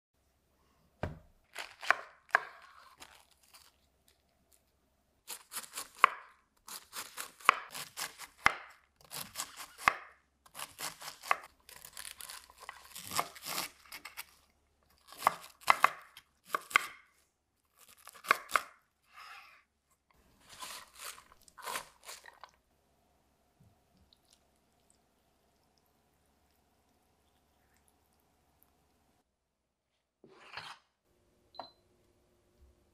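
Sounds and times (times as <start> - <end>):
knife slicing cabbage on board: 5.3 - 14.4, 15.1 - 17.1, 20.4 - 22.3.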